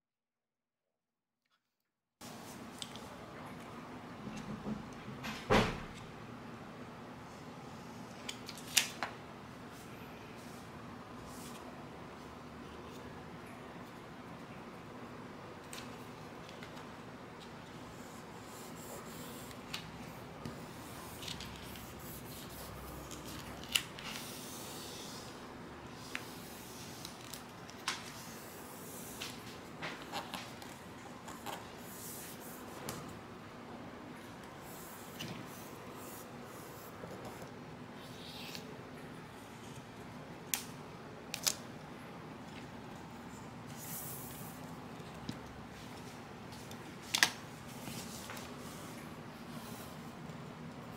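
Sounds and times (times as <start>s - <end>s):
vinyl sheet rustling and rubbing: 45.7s - 48.9s.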